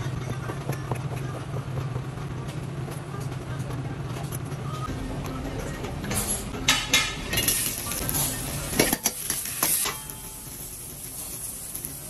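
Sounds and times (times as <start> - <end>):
metal ladle scraping a wok: 6.7 - 12.0
vegetables sizzling in a wok: 7.1 - 12.0.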